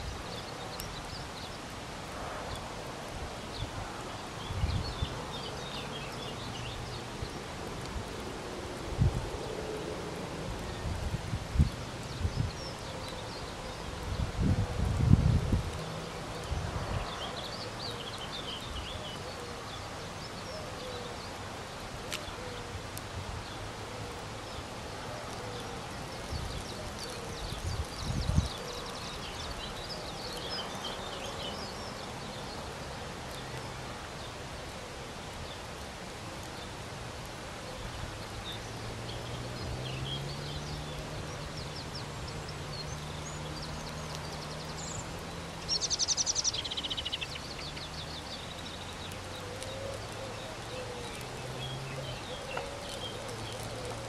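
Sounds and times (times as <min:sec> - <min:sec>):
small birds chirping: 0:00.0 - 0:54.0
wind buffeting microphone: 0:02.4 - 0:19.1, 0:25.7 - 0:31.4.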